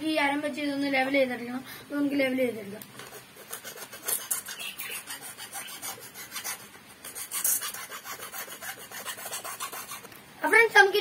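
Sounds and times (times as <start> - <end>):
knife scraping coconut shell: 3.1 - 10.1.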